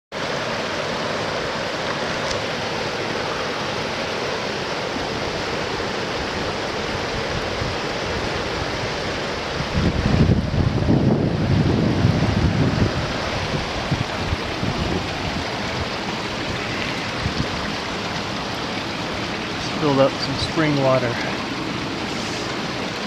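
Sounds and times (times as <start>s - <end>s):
river water rushing over boulders: 0.1s - 23.0s
wind buffeting microphone: 6.2s - 18.5s.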